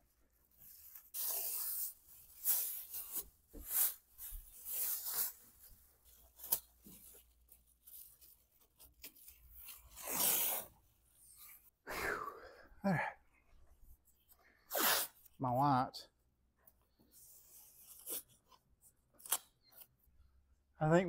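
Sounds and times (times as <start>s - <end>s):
masking tape pulled and torn: 0.6s - 4.0s, 6.1s - 7.2s, 7.9s - 10.8s, 17.6s - 19.9s.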